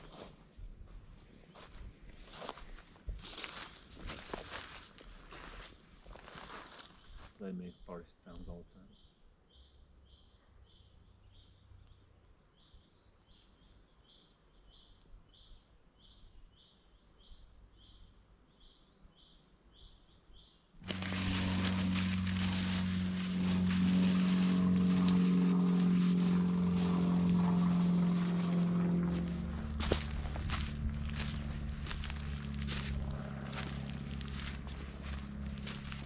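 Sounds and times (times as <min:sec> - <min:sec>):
loud droning hum and hiss: 0:20.8 - 0:36.0.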